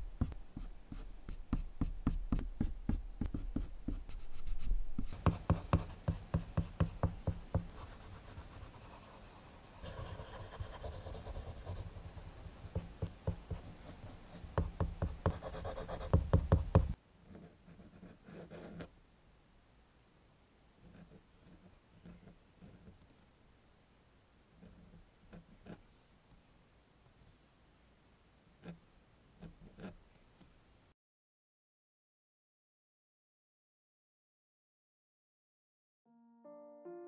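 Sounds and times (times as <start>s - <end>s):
colored pencil scratching on paper: 0.2s - 18.9s
pen nib scratching on paper: 0.2s - 18.9s.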